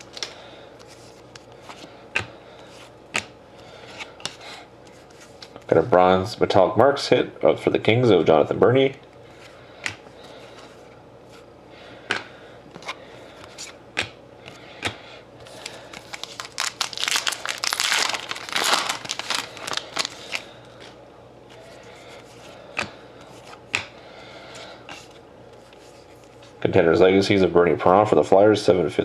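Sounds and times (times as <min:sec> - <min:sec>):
foil wrapper tearing and crinkling: 0:00.0 - 0:00.3, 0:15.5 - 0:20.5
cards clicking and tapping: 0:23.7 - 0:23.9.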